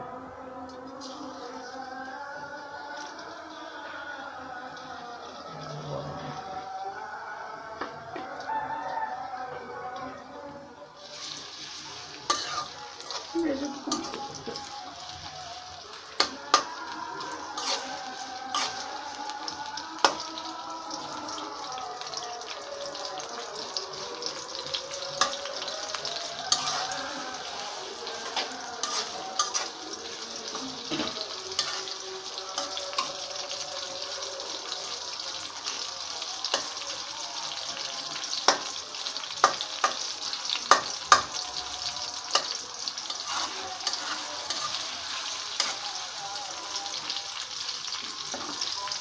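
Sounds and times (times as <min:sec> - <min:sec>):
onions sizzling in oil: 0:00.8 - 0:10.0, 0:11.0 - 0:49.0
metal spatula scraping pan: 0:11.1 - 0:14.2, 0:17.5 - 0:18.9, 0:26.5 - 0:32.0, 0:43.0 - 0:45.8.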